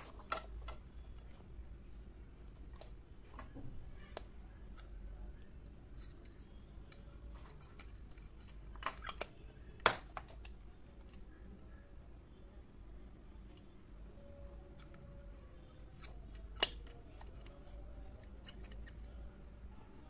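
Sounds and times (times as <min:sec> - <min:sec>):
plastic toy bins clicking: 0:00.0 - 0:01.0.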